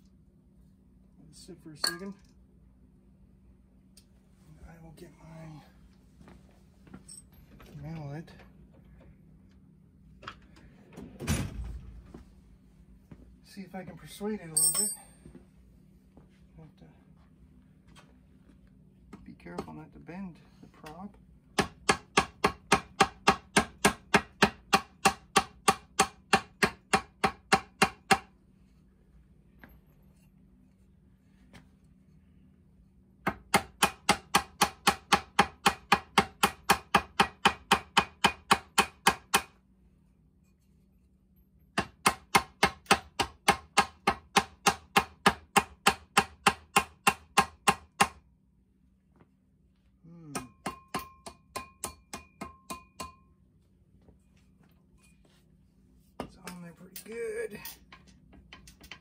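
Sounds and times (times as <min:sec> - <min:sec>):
rubber mallet tapping metal: 0:50.4 - 0:53.3.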